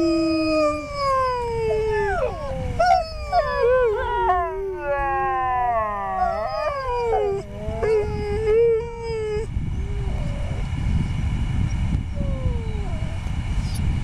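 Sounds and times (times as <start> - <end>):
huskies howling: 0.0 - 10.7
low rumbling noise: 0.0 - 14.0.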